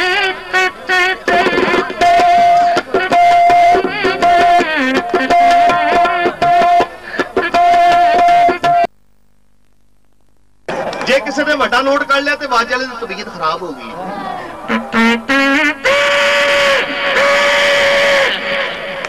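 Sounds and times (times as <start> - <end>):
mouth-mimicked reedy melody: 0.0 - 8.9, 14.7 - 18.6
percussive beats: 1.3 - 8.9.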